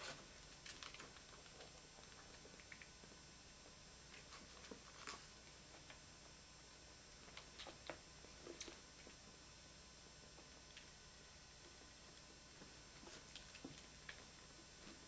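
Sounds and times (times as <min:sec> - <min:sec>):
faint clicks and rustles: 0:11.6 - 0:15.0.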